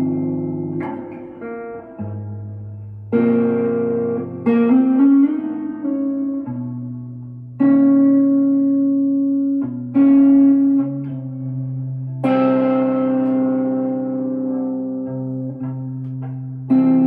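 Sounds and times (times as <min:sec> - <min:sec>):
electric guitar ambient chords: 0:00.0 - 0:17.0.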